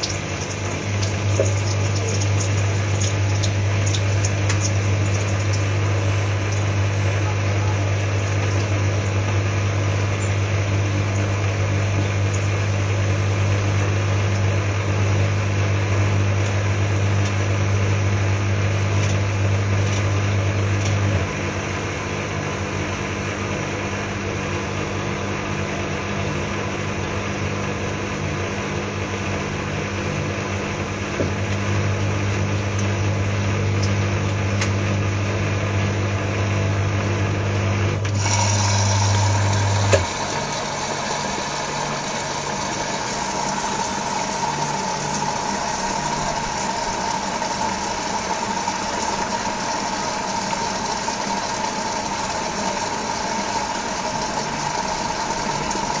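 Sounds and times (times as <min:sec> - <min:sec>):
washing machine motor humming: 0:00.0 - 0:56.0.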